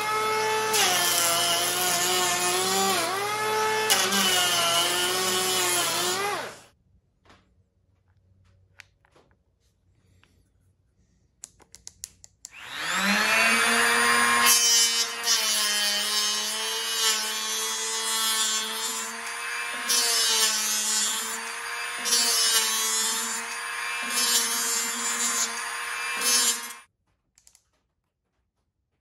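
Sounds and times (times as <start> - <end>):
hand planer motor whine: 0.0 - 6.7, 12.5 - 26.9
planer cutting wood: 0.0 - 6.7, 12.5 - 26.9.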